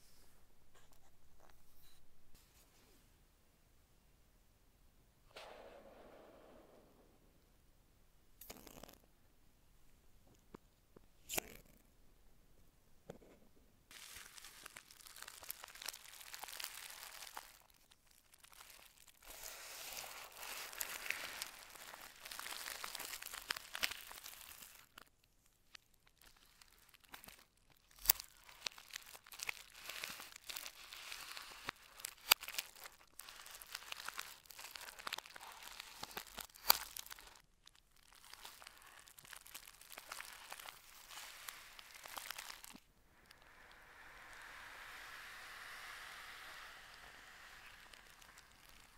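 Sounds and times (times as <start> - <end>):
tape seal peeling: 13.9 - 25.1, 26.2 - 37.4, 38.0 - 42.8, 44.3 - 48.9
plastic packaging crinkling: 13.9 - 43.4, 46.3 - 48.9
scissors snipping plastic: 31.7 - 37.3.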